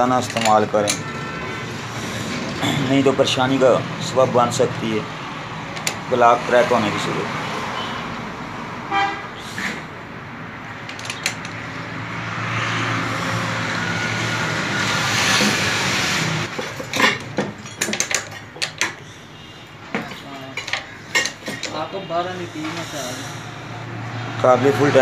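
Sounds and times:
socket wrench clicking and knocking: 5.7 - 6.1, 10.8 - 11.6.

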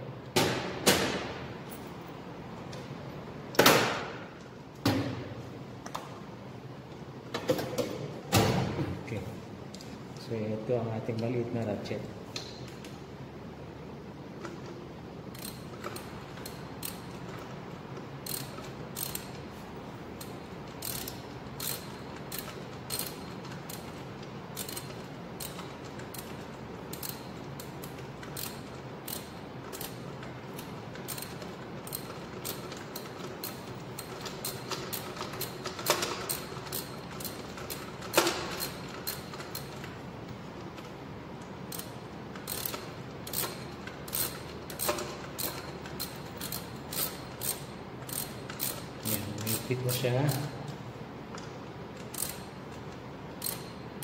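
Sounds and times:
hand ratchet clicking: 14.4 - 19.5, 20.1 - 40.0, 40.7 - 50.8, 51.8 - 54.0.

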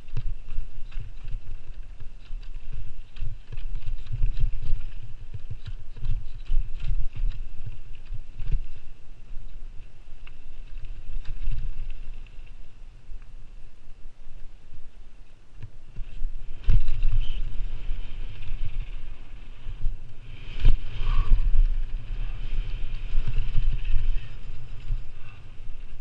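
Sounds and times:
bike rattling over rocks: 0.0 - 12.7, 15.6 - 26.0
tyres rumbling on dirt trail: 0.0 - 26.0
air rushing past: 16.2 - 26.0.

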